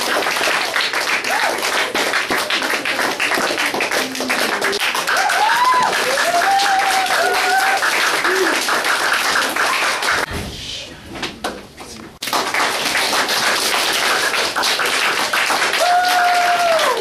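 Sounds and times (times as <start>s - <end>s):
audience clapping: 0.0s - 10.3s, 12.2s - 17.0s
voices calling out and cheering: 4.0s - 8.6s.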